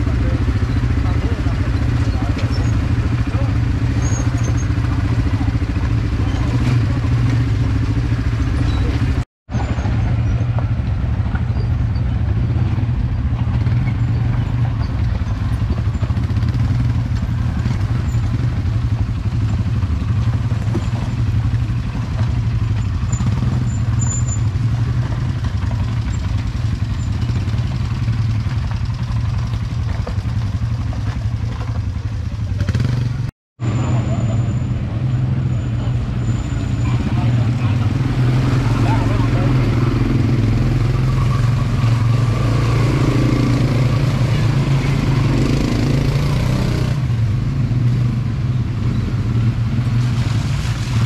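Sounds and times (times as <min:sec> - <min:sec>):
quad bike engines running: 0:00.0 - 0:51.0.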